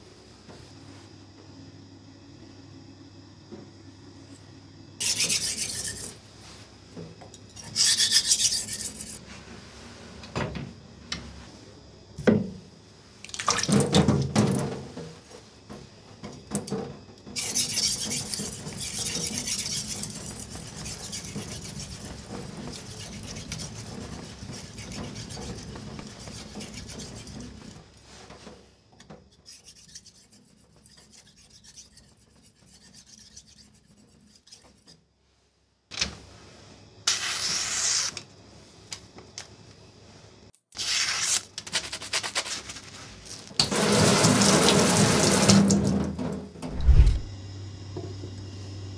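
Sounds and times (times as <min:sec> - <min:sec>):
knife scraping on whetstone: 0:05.0 - 0:06.2, 0:07.5 - 0:09.2, 0:17.4 - 0:27.8, 0:29.3 - 0:35.0, 0:46.7 - 0:47.3.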